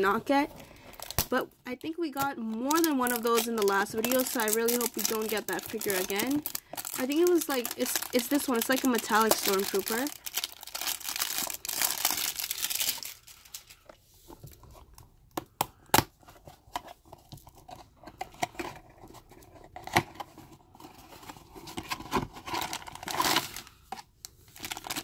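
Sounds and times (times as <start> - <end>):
plastic shrink-wrap crinkling: 0.0 - 14.0, 22.3 - 25.0
plastic tearing: 0.7 - 1.3, 2.2 - 13.9, 24.5 - 25.0.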